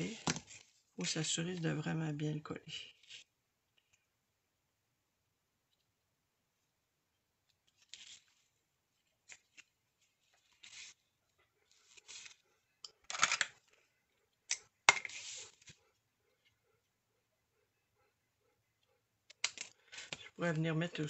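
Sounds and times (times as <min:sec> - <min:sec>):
paper rustling: 0:07.5 - 0:12.4, 0:14.9 - 0:15.8.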